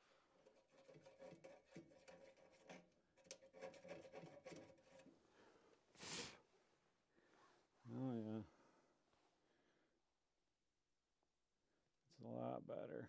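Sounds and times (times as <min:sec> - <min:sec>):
wrench scraping caulk: 0:00.4 - 0:05.1.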